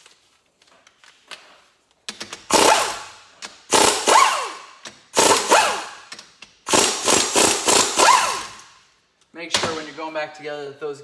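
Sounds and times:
impact wrench hammering: 2.3s - 8.8s.

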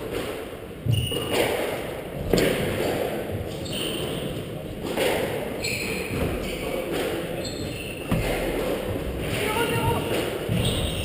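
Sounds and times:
shoes squeaking on wooden floor: 5.6s - 6.8s, 7.4s - 11.0s.

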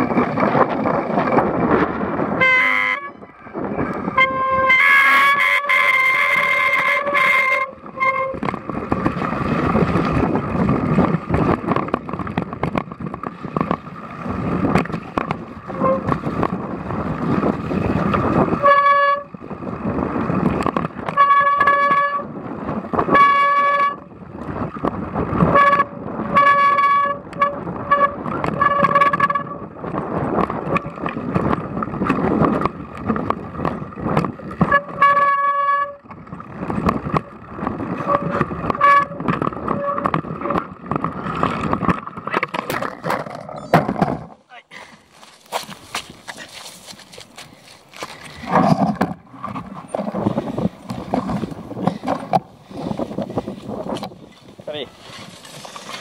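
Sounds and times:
tyres crunching on stony trail: 36.2s - 56.0s.

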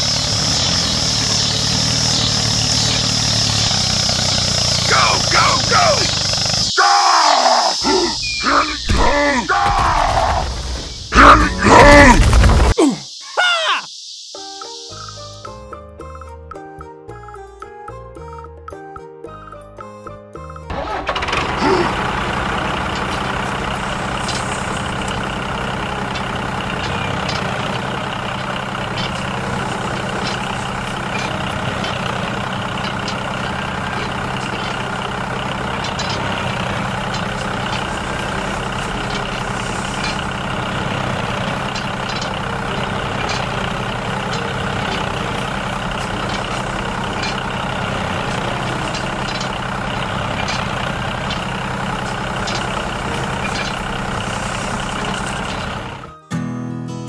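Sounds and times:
engine idling: 0.0s - 6.7s, 20.7s - 56.2s.

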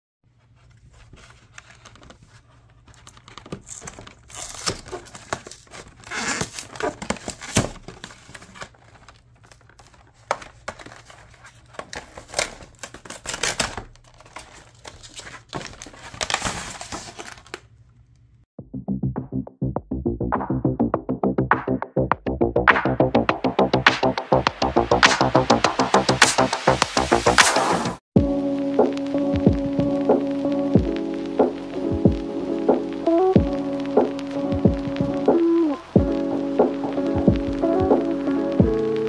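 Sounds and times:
cardboard and plastic crinkling: 0.4s - 17.8s.

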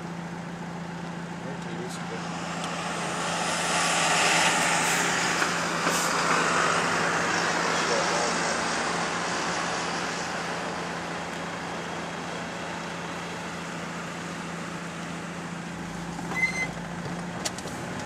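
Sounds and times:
engine hum: 0.0s - 18.0s
tyre and wind hiss: 2.0s - 11.0s
high-pitched squeak: 16.3s - 16.8s.

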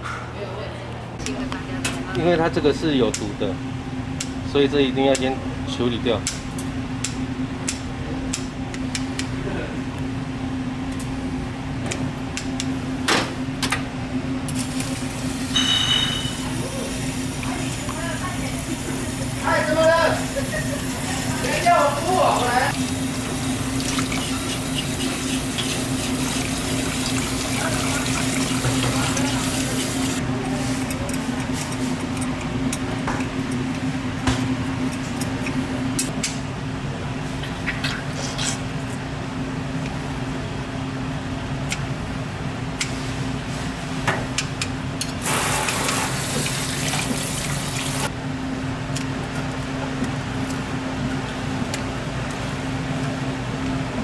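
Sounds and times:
tap water running into sink: 45.6s - 48.0s.

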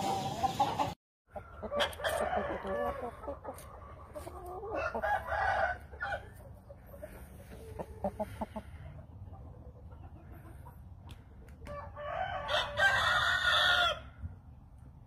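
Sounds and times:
roosters clucking: 0.0s - 14.3s
rooster crowing: 1.6s - 3.2s, 4.7s - 6.2s, 11.7s - 14.1s.

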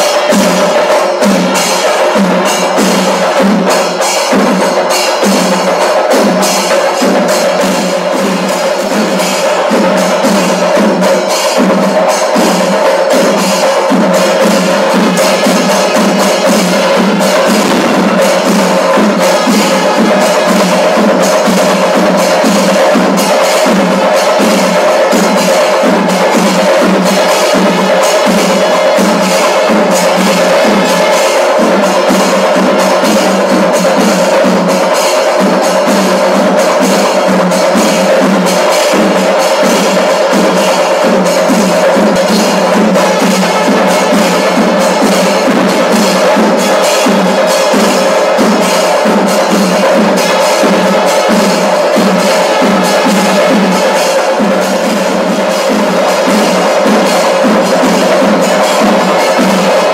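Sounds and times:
cymbals: 0.0s - 59.9s
fast loud drumming: 0.0s - 59.9s.

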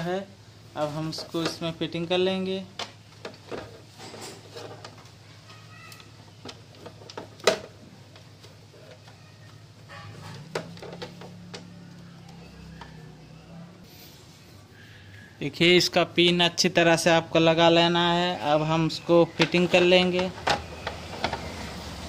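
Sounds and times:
plastic parts clicking and knocking: 1.1s - 13.2s, 19.2s - 21.7s.

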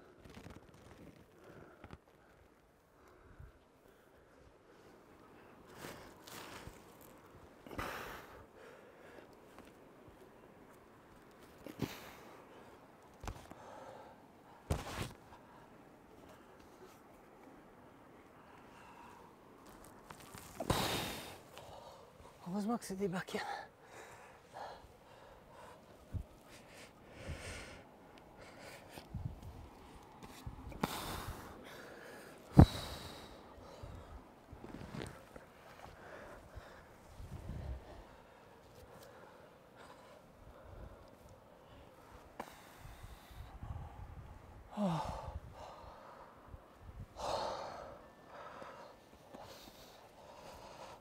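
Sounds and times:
person breathing hard: 23.6s - 29.1s, 35.8s - 51.0s
heavy breathing through nose: 23.8s - 29.2s.

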